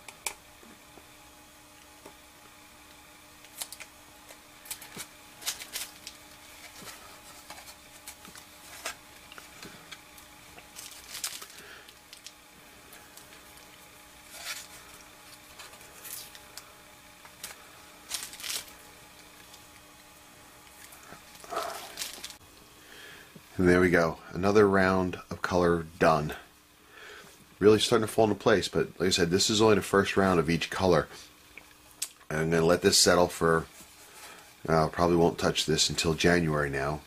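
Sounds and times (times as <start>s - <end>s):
masking tape peeling: 3.4s - 12.4s, 13.1s - 16.6s, 17.2s - 19.7s, 20.7s - 22.4s.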